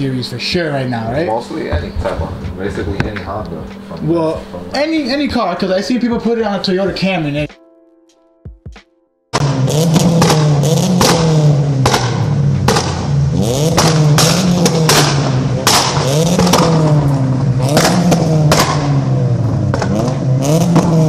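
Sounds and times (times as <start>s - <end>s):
engine droning at fixed revs: 0.0s - 6.1s, 9.4s - 21.0s
loud exhaust bangs: 9.3s - 21.0s.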